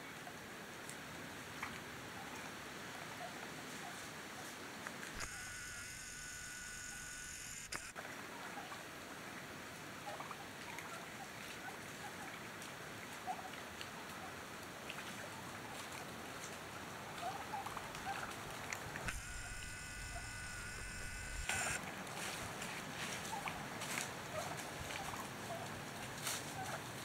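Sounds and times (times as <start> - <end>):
camera zoom motor whining: 5.2 - 7.9, 19.0 - 21.8
wild turkeys calling: 10.0 - 11.0, 17.2 - 18.4, 23.1 - 25.7.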